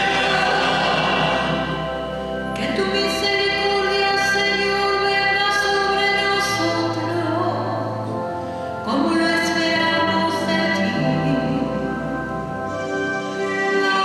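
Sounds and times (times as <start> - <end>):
choir singing a slow hymn: 0.0 - 2.9.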